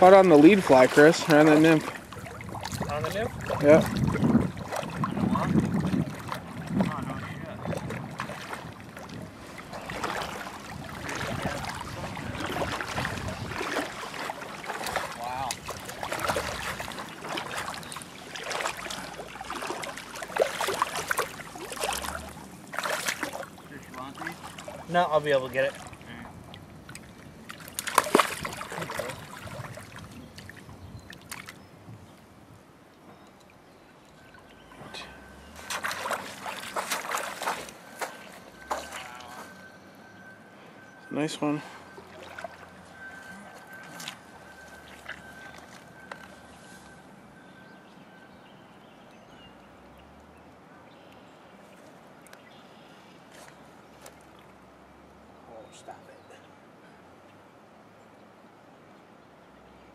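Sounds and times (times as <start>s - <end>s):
fish thrashing and splashing: 0.0s - 7.0s, 7.6s - 25.0s, 26.8s - 31.6s, 35.4s - 39.7s, 41.9s - 46.4s.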